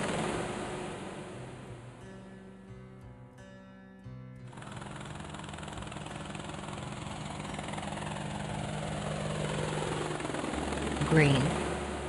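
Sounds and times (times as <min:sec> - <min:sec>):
helicopter engine and rotor: 0:00.0 - 0:02.0, 0:04.5 - 0:12.0.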